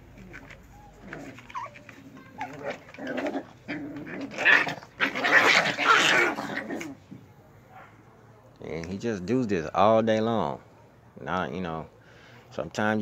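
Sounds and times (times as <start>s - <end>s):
puppies growling in play: 0.1s - 7.0s
puppy whining: 0.3s - 6.8s.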